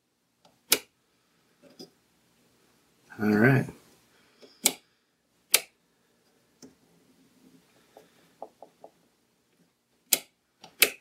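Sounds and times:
toggle switch clicks: 0.7 - 0.9, 5.5 - 5.8, 10.1 - 11.0.

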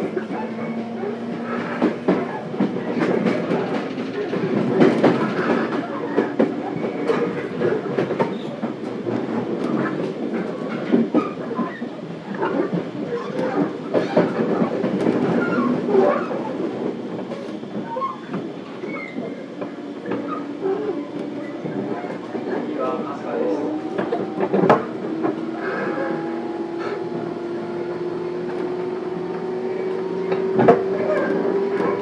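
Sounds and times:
train running gear rumble: 0.0 - 32.0
wheels clicking over rail joints: 28.4 - 32.0.

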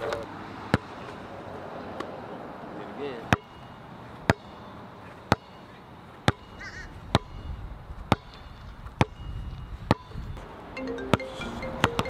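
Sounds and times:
basketball bouncing on asphalt: 0.7 - 1.2, 3.3 - 10.3, 11.8 - 12.0.

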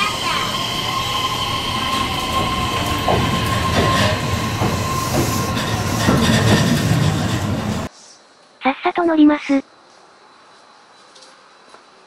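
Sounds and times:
electric train whine: 0.0 - 7.9
train wheels squealing: 0.0 - 7.9.

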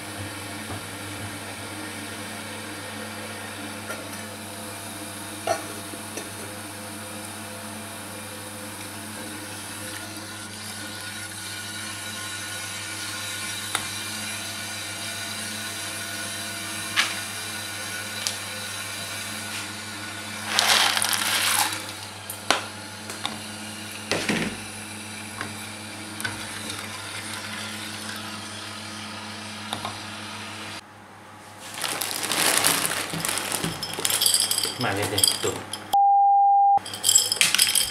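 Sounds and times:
plastic bag of pasta rustling: 20.4 - 22.0, 31.6 - 35.6.

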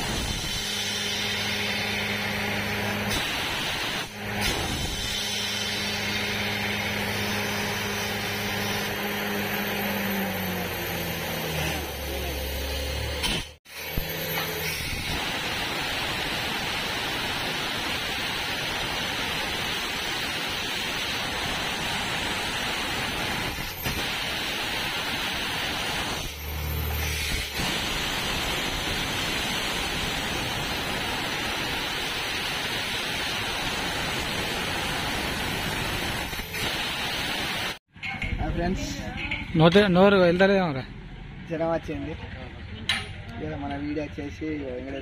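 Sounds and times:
hiss of air and spray: 0.0 - 9.8, 13.2 - 37.8
drilling rig running: 0.0 - 42.2.

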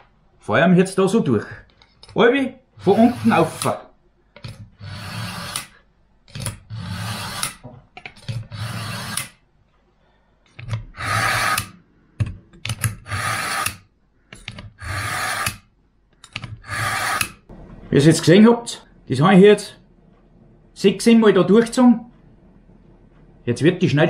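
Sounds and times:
knife scraping through sharpener: 8.3 - 9.3, 11.0 - 11.8, 13.0 - 13.8, 14.8 - 15.6, 16.6 - 17.4.

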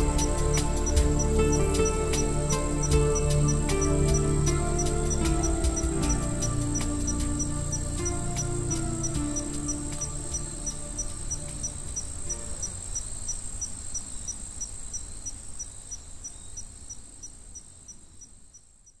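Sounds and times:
background music melody: 0.0 - 13.8
cricket-like trill: 0.0 - 19.0.

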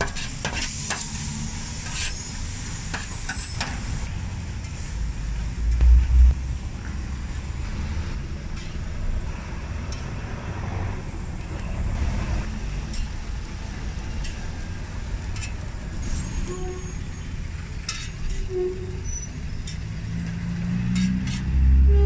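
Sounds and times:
street traffic rumble: 0.0 - 22.0
metal spatula scraping griddle: 1.8 - 2.2
vehicle engine: 3.6 - 22.0.

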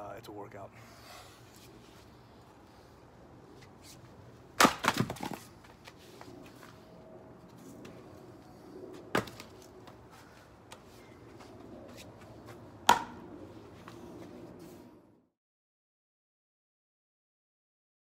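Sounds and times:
axe splitting wood: 4.6 - 5.4, 12.9 - 13.2.

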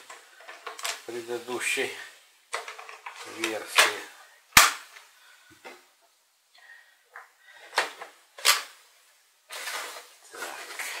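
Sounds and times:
plastic parts clicking into place: 0.0 - 1.1, 2.5 - 4.0.

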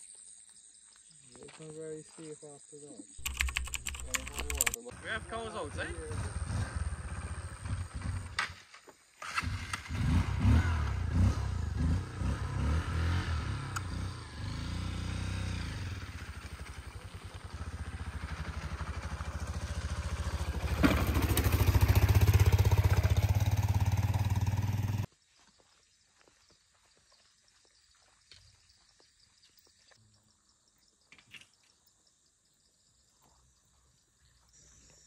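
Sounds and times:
small engine running: 3.2 - 8.6, 9.2 - 25.1.

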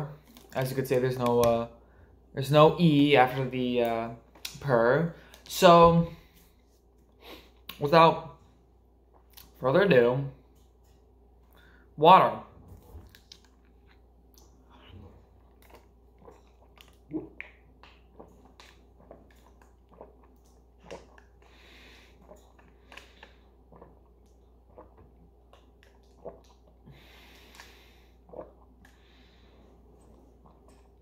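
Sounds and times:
person gulping water: 12.6 - 31.0
breaths through the nose: 26.9 - 28.3.

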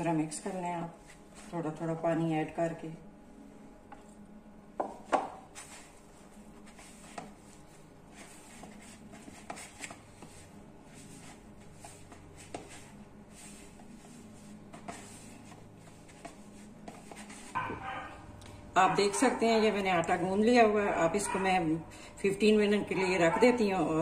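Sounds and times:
faint steady hum: 0.0 - 24.0
hands kneading dough: 4.8 - 17.8.

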